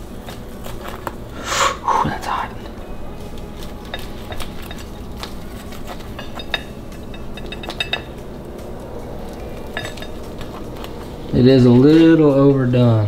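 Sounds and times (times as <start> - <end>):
ringing cutlery clinks: 3.8 - 8.3, 9.6 - 10.7.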